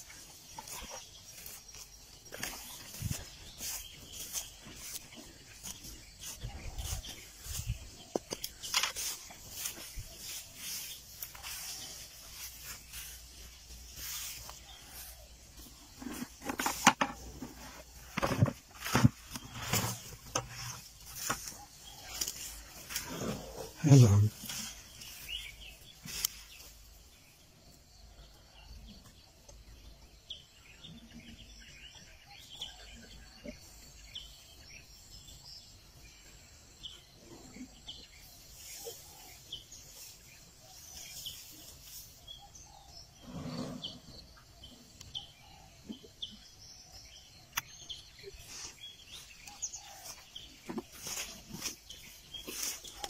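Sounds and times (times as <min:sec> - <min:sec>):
bird chirps and calls: 0:00.0 - 0:16.7
faint outdoor background noise: 0:00.0 - 0:53.0.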